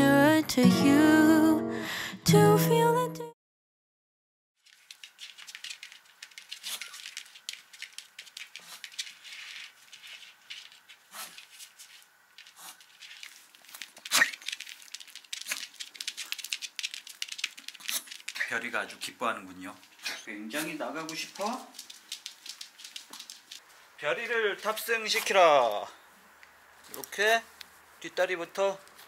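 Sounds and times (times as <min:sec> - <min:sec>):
dog claws clicking and rattling: 0:04.7 - 0:11.6, 0:12.3 - 0:19.1, 0:19.7 - 0:23.6.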